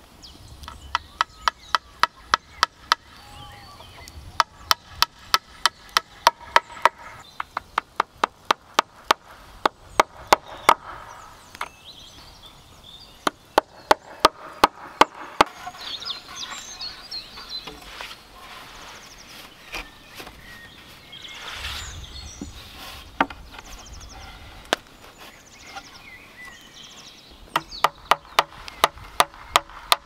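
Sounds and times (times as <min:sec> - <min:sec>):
scraping and shuffling of sand: 0:15.2 - 0:27.4.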